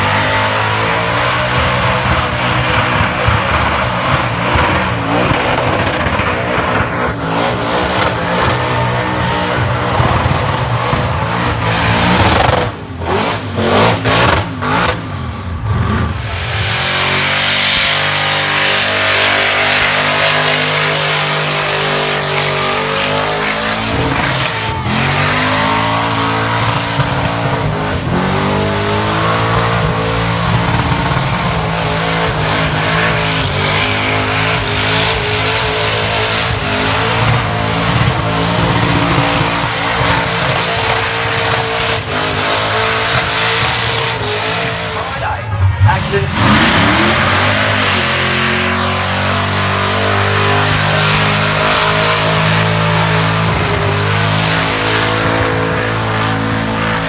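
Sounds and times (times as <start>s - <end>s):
car engine revving hard: 0.0s - 57.0s
tyres screeching: 16.1s - 27.5s.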